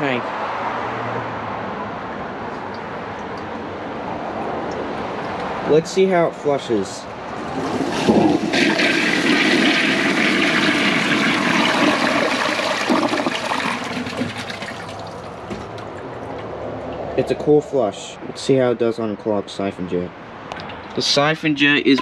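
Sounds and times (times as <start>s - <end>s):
toilet flushing: 7.4s - 15.5s.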